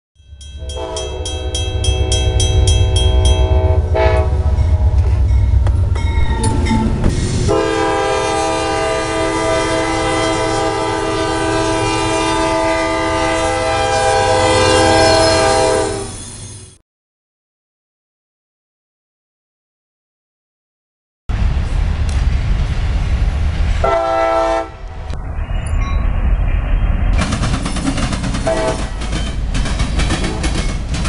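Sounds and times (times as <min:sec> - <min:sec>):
passing train rumble: 0:00.2 - 0:16.8, 0:21.3 - 0:31.0
locomotive air horn: 0:00.6 - 0:05.3, 0:07.5 - 0:16.2, 0:23.8 - 0:24.9, 0:28.4 - 0:28.9.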